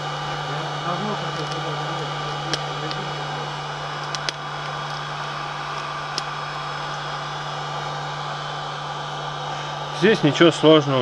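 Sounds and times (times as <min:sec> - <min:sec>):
heat gun whirring: 0:00.0 - 0:11.0
vinyl film clicks: 0:04.0 - 0:05.0, 0:05.7 - 0:07.0.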